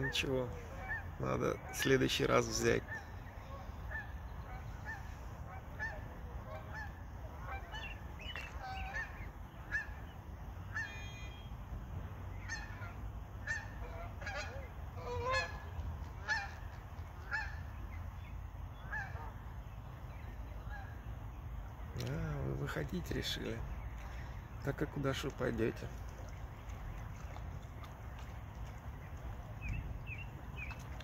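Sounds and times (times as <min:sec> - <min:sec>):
geese calling: 0:00.0 - 0:02.0, 0:02.6 - 0:11.5, 0:12.3 - 0:17.8, 0:18.7 - 0:19.5
goslings peeping: 0:02.7 - 0:11.5, 0:12.3 - 0:17.9, 0:18.8 - 0:21.0, 0:25.7 - 0:31.0.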